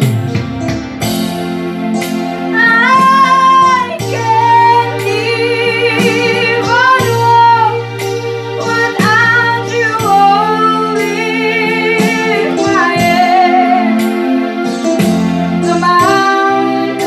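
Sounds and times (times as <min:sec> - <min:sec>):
electronic keyboard chords: 0:00.0 - 0:17.0
woman singing with vibrato: 0:02.5 - 0:08.0, 0:08.6 - 0:14.2, 0:15.6 - 0:17.0.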